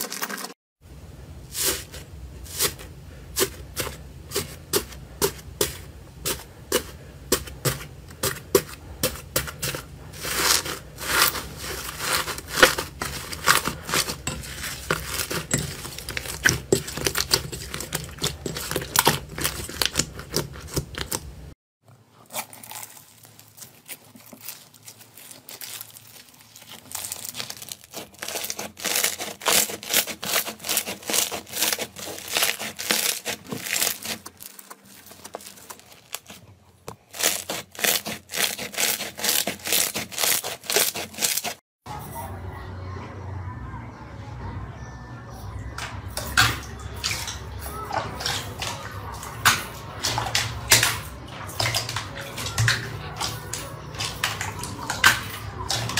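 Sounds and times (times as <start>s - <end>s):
slime crackling and popping: 22.3s - 36.4s, 37.1s - 41.6s.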